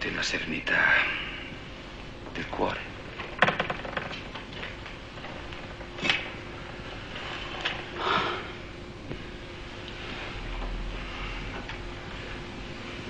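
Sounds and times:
faint steady hum: 0:00.0 - 0:13.0
soft rustle: 0:04.7 - 0:13.0.

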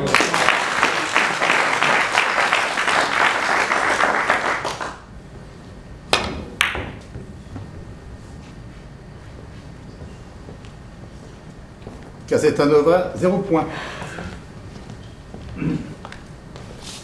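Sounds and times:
audience applause: 0:00.0 - 0:05.1.

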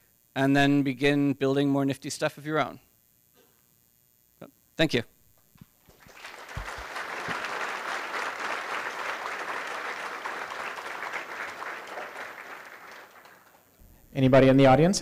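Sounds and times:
audience applauding: 0:05.9 - 0:13.8.

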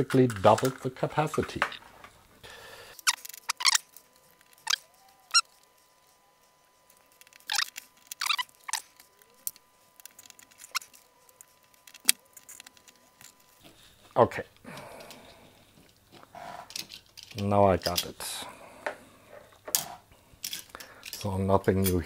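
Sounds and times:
sharp metallic clicks and squeaks: 0:03.0 - 0:05.6, 0:07.1 - 0:12.9.

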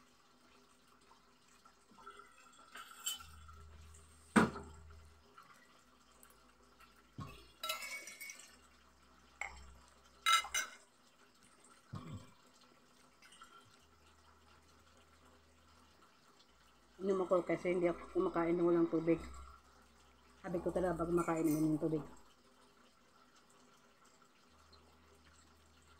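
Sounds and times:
cutlery clinking on plate: 0:07.6 - 0:08.5, 0:10.3 - 0:10.8.

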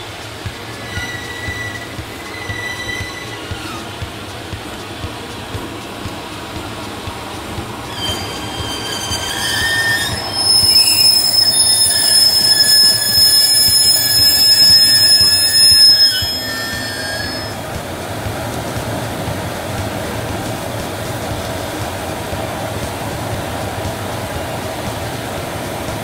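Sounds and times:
train wheels squealing: 0:00.0 - 0:04.4, 0:07.6 - 0:17.8.

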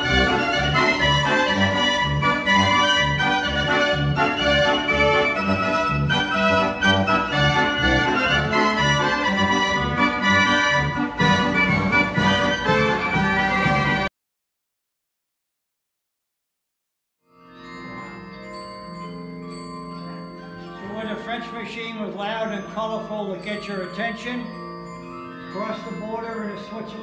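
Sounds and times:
mechanical organ music: 0:00.0 - 0:14.1, 0:19.9 - 0:27.0.

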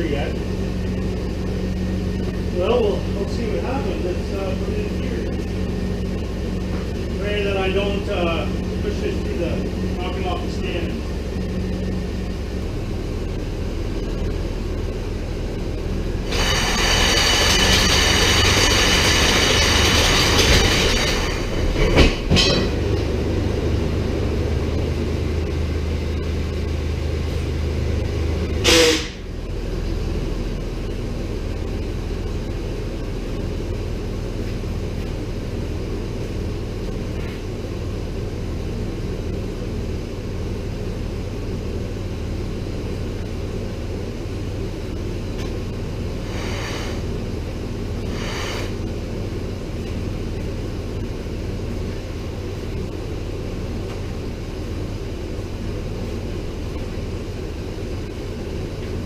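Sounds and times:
engine drone: 0:00.0 - 0:59.0
loud metal clank: 0:20.2 - 0:22.9
high squeal: 0:28.6 - 0:29.2.

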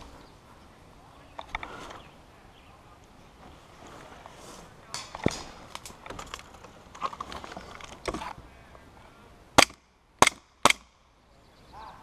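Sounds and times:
faint rustling: 0:03.0 - 0:09.2
airsoft pistol shots: 0:09.6 - 0:10.9.

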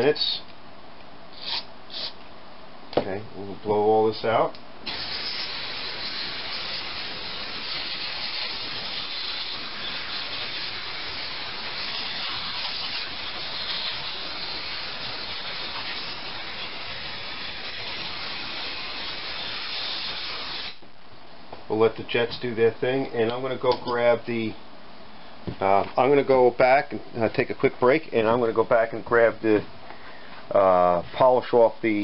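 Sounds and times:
compressed-air blow gun hissing: 0:01.3 - 0:02.2, 0:04.8 - 0:20.8.

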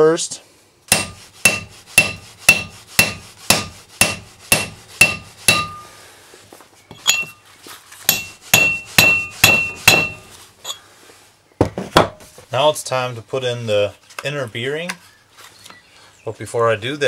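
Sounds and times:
hammer striking metal: 0:00.9 - 0:05.9, 0:08.1 - 0:10.3.

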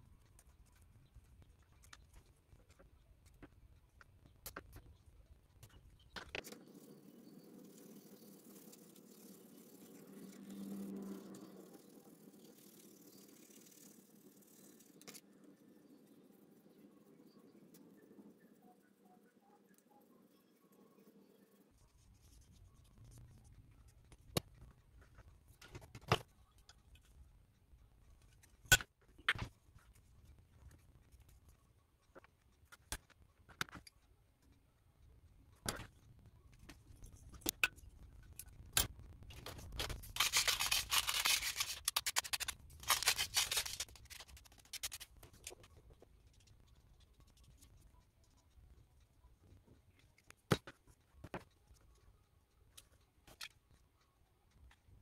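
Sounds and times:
scratchy rasping: 0:40.1 - 0:45.2.

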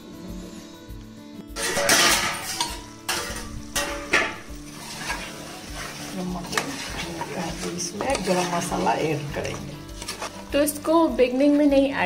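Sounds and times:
metal spatula scraping metal pot: 0:01.6 - 0:10.6.

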